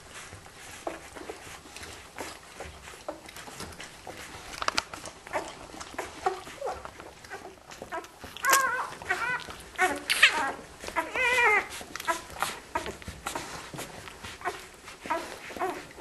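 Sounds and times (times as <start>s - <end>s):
puppies suckling wet clicks: 0.0s - 16.0s
puppy squeaking cries: 6.4s - 13.4s.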